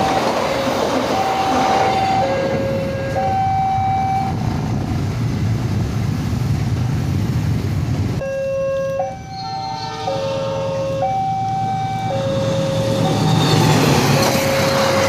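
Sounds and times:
two-tone crossing alarm: 0.0 - 4.4, 8.2 - 15.0
motorcycle engines rumbling: 0.0 - 15.0.

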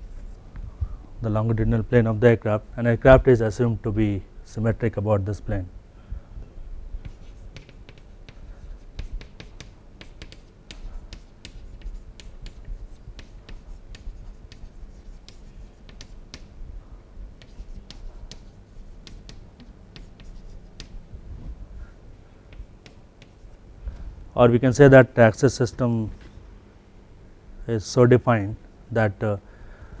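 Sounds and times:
chalk tapping and scratching on board: 7.0 - 16.6, 17.4 - 21.0, 22.5 - 23.6.

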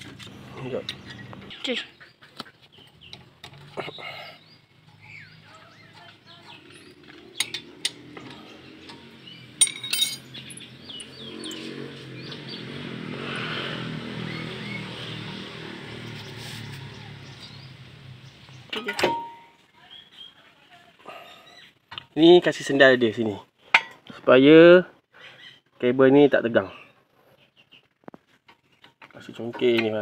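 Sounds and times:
birds chirping: 0.0 - 23.4, 25.0 - 30.0
metal tools clinking: 5.9 - 11.7, 18.7 - 19.6.

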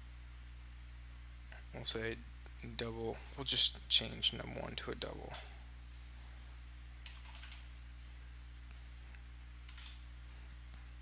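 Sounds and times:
keyboard typing: 6.2 - 7.7, 9.7 - 10.0.

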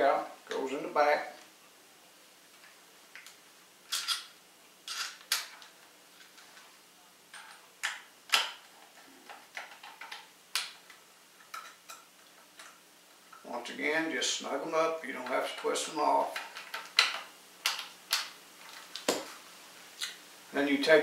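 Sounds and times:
screwdriver clicking and scraping: 3.9 - 4.3, 4.9 - 5.6.

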